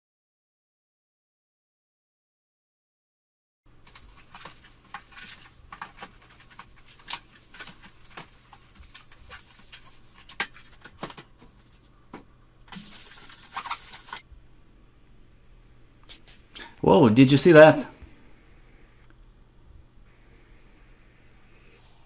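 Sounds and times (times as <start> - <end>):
cloth rubbing plastic screen: 3.7 - 12.0, 12.7 - 14.2.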